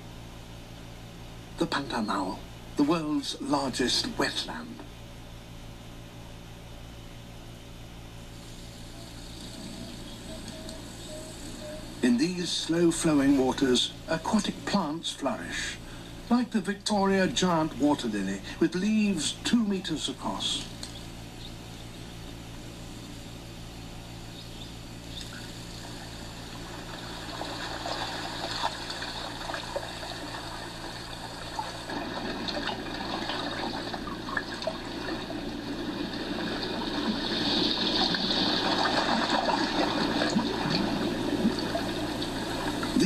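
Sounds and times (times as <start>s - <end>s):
moving water: 25.2s - 43.0s.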